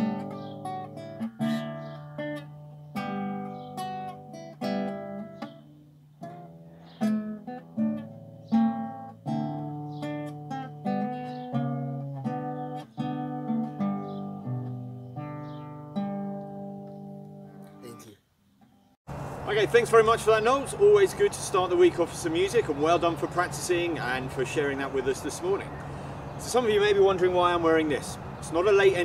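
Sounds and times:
classical guitar fingerstyle: 0:00.0 - 0:17.9.

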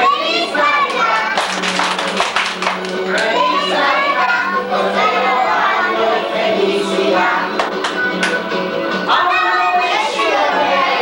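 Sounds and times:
young children singing: 0:00.0 - 0:01.7, 0:03.0 - 0:07.7, 0:09.0 - 0:11.0
hand clapping: 0:00.8 - 0:03.3, 0:07.5 - 0:08.4.

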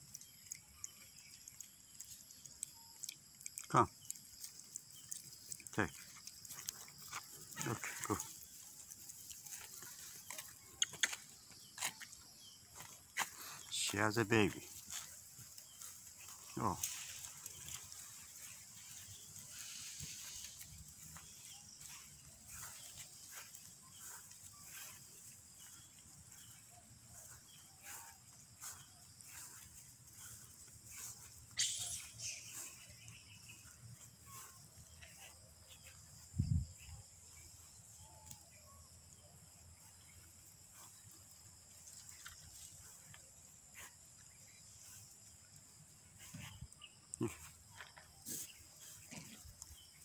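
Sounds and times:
monkey calls and squeaks: 0:31.5 - 0:32.8.

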